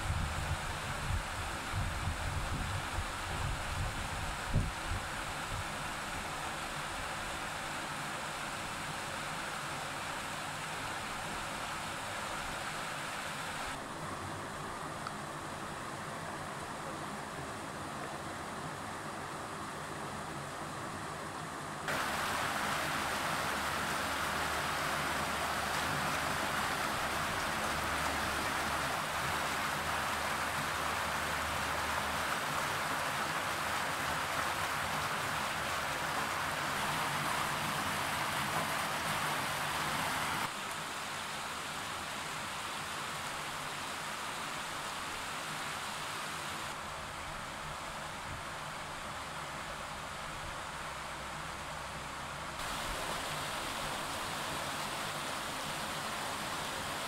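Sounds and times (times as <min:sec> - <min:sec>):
flowing water wash: 0:00.0 - 0:57.0
whitewater rushing over rocks: 0:21.8 - 0:57.0.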